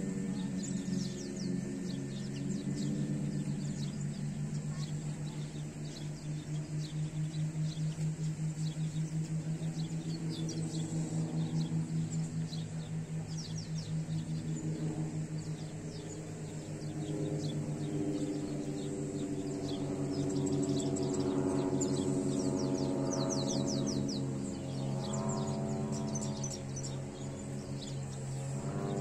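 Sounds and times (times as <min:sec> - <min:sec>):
low pulsing drone: 0:00.0 - 0:29.0
small birds chirping: 0:00.0 - 0:29.0.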